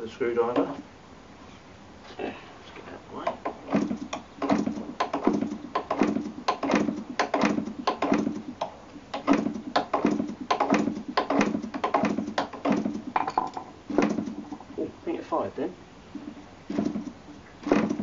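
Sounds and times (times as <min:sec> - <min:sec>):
model engine propeller knocks: 0:03.3 - 0:08.5, 0:09.1 - 0:14.5.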